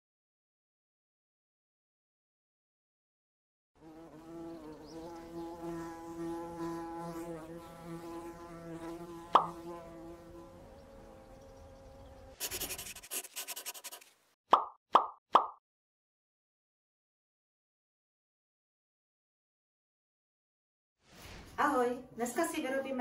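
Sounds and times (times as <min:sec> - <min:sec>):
insect-like buzzing: 0:03.8 - 0:14.0
sharp pop: 0:09.3 - 0:09.5.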